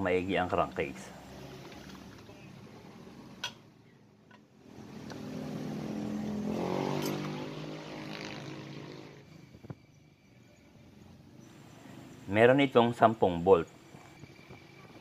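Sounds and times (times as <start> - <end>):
passing vehicle engine hum: 0.8 - 3.8, 4.6 - 9.6.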